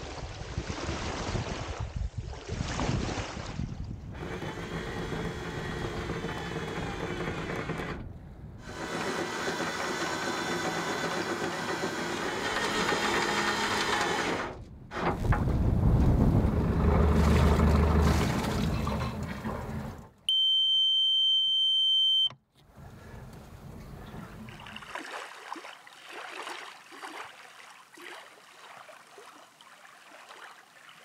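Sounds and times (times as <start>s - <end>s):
wind: 0.0s - 31.0s
anchor windlass whirring: 4.0s - 20.2s
water lapping: 16.8s - 20.0s, 22.8s - 31.0s
alarm buzzer beep: 20.3s - 22.4s.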